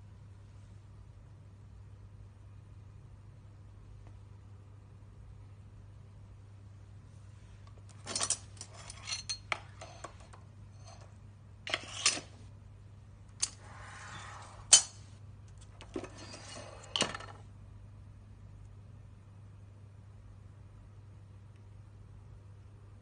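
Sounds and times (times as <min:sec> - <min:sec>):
metal clamps clinking: 0:07.9 - 0:11.1.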